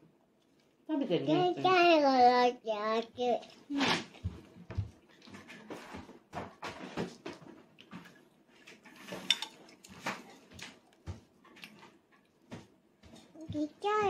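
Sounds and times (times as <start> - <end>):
dishes and cutlery clinking: 8.7 - 10.4.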